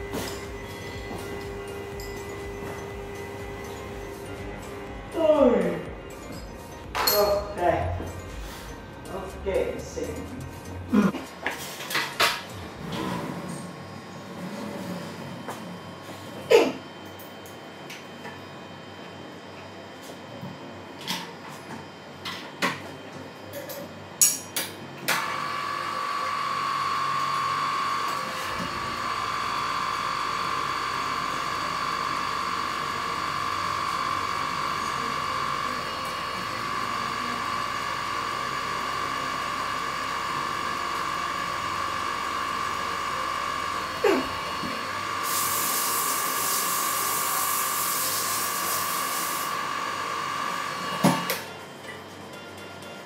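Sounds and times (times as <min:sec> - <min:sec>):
drill press motor whining: 0:00.0 - 0:06.9, 0:25.1 - 0:51.6.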